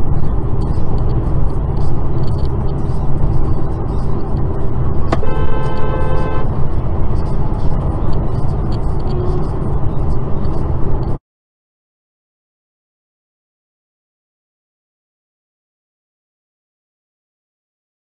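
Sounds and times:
car road and engine rumble: 0.0s - 11.2s
car horn honk: 5.1s - 6.5s.

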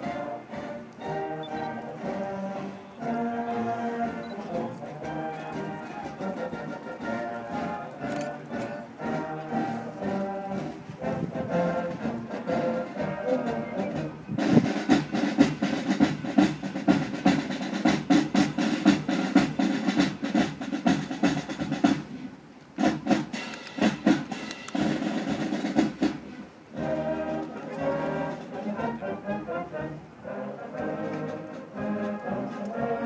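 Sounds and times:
loud brass: 0.0s - 15.3s, 26.8s - 33.0s
held wind notes: 0.0s - 33.0s
marching band playing: 0.0s - 33.0s
dense drum strokes: 4.8s - 28.8s.

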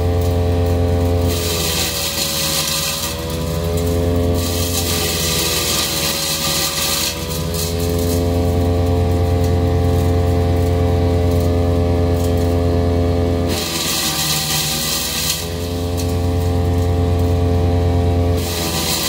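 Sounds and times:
wood chipper engine running: 0.0s - 19.0s
wood crackling in chipper: 0.0s - 19.0s.

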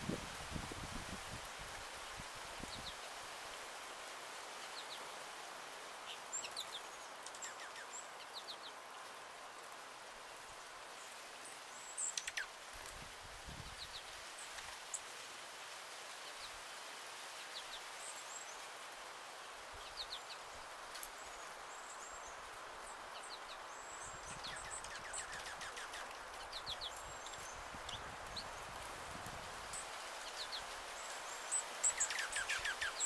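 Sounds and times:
steady outdoor hiss: 0.0s - 33.0s
songbirds chirping: 5.8s - 13.0s, 17.3s - 33.0s.

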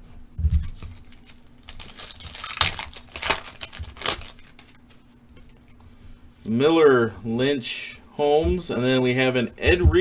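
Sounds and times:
wrapper tearing and crinkling: 1.2s - 4.8s.

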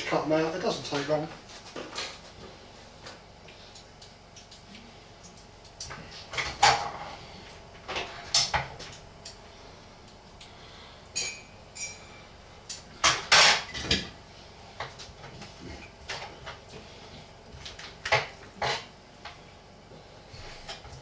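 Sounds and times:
metal clink: 11.2s - 12.2s.

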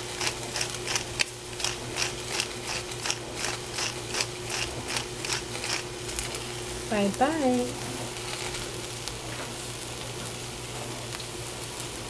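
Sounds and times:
steady low hum: 0.0s - 11.0s
pepper grinder ratcheting clicks: 0.2s - 5.9s.

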